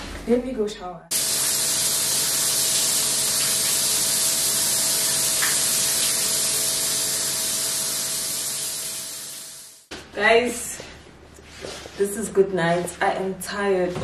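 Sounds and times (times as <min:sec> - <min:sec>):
shower water spraying: 0:01.1 - 0:09.9.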